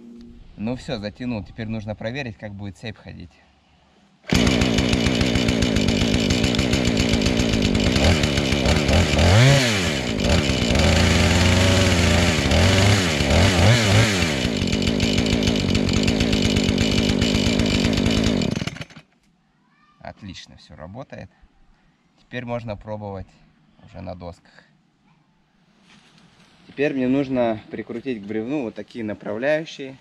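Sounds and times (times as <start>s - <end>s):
chainsaw revving: 4.3s - 19.1s.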